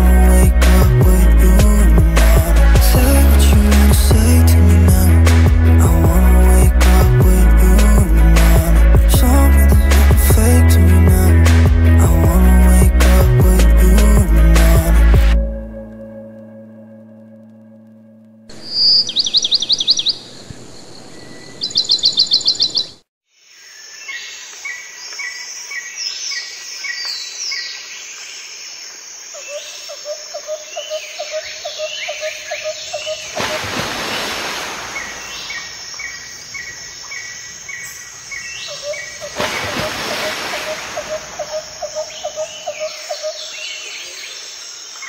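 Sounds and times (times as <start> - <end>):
birds chirping: 18.5 - 23.0, 29.4 - 45.0
high insect drone: 27.8 - 45.0.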